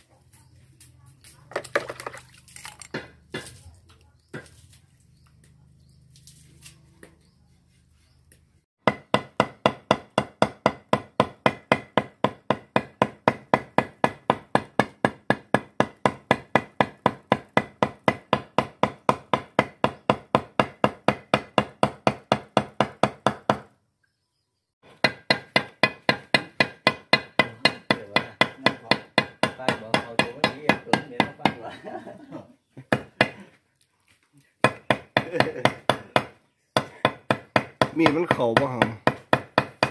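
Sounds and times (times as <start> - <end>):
cleaver chopping on wooden block: 2.9 - 3.6, 8.8 - 23.7, 24.8 - 31.6, 34.6 - 39.9.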